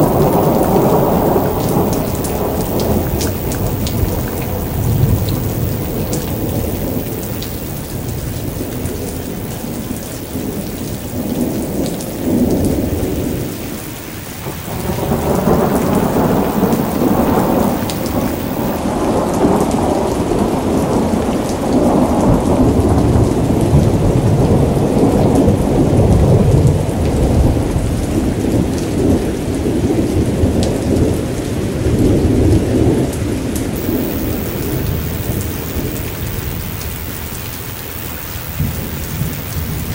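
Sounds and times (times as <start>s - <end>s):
rolling thunder: 0.0s - 19.6s
steady rain: 0.0s - 39.9s.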